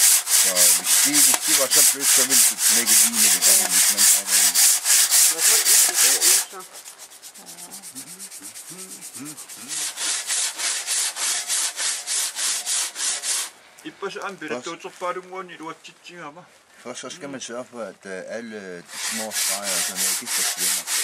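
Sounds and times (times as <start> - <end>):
handsaw cutting stone: 0.0 - 13.5, 18.9 - 21.0.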